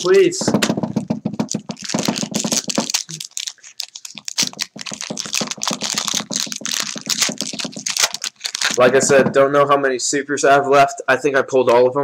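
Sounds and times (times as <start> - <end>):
foil wrapper tearing and crinkling: 1.4 - 8.8.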